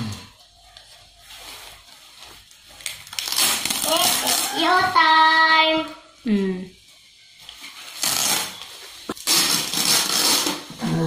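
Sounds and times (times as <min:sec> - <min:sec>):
palm leaves rustling and crackling: 0:00.8 - 0:04.8.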